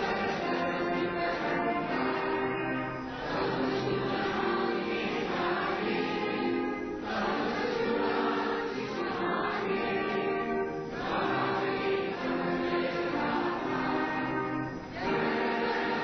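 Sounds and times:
choir singing an anthem with music: 0:00.0 - 0:16.0.

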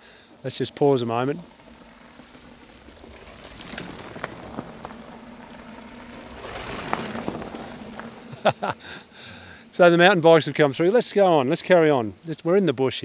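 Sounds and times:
bike tyres rolling on dirt: 0:00.3 - 0:12.0
bike clicks and rattles: 0:01.5 - 0:08.3.

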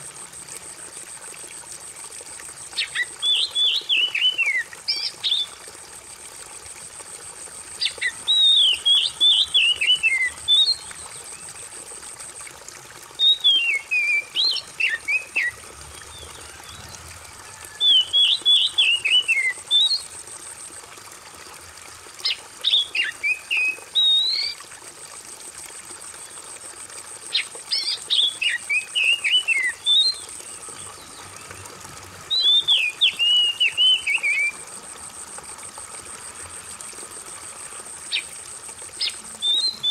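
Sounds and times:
trickle of running water: 0:00.0 - 0:39.9
bird singing whistled phrases: 0:02.8 - 0:05.5, 0:07.8 - 0:11.5, 0:13.2 - 0:15.6, 0:16.2 - 0:20.1, 0:22.7 - 0:24.6, 0:27.4 - 0:30.3, 0:32.3 - 0:34.6, 0:39.0 - 0:39.9.

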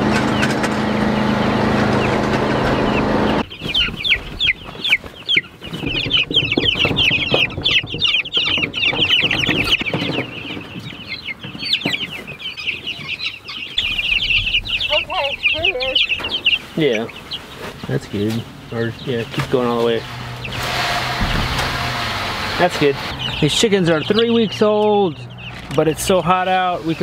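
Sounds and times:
engine hum: 0:00.0 - 0:03.6, 0:13.8 - 0:27.0
chicks peeping: 0:00.0 - 0:27.0
knocks: 0:19.2 - 0:23.4.

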